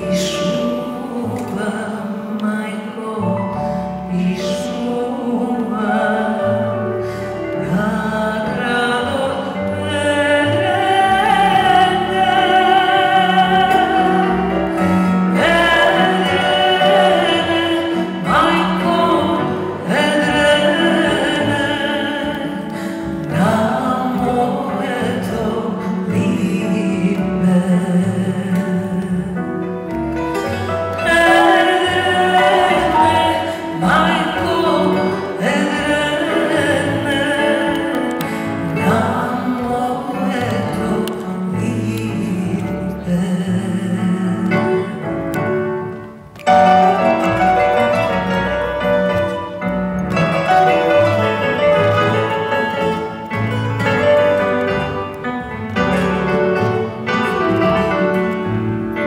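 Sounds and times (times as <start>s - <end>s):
woman singing with vibrato: 0.0s - 29.8s, 30.9s - 45.7s
acoustic ensemble playing: 0.0s - 59.0s.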